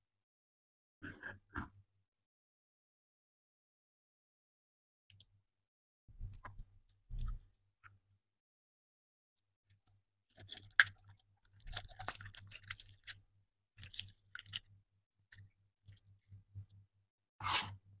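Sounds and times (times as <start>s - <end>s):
slime squishing and crackling: 10.4s - 13.2s, 13.8s - 14.7s.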